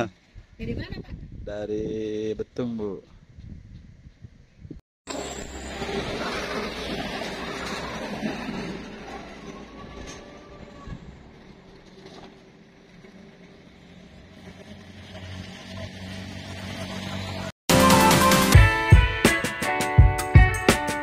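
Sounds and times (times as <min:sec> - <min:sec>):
roadside traffic: 0:05.1 - 0:17.6.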